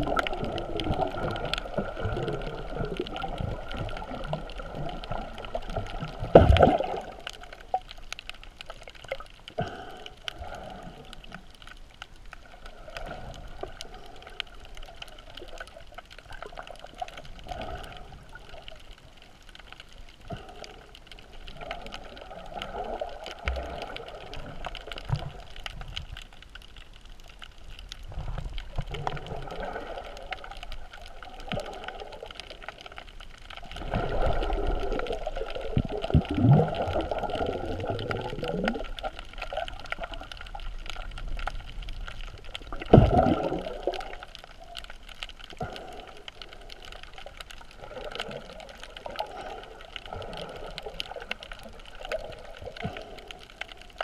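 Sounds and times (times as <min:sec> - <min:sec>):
muffled underwater sloshing: 0:00.0 - 0:54.0
small clicks and crackles: 0:00.0 - 0:54.0.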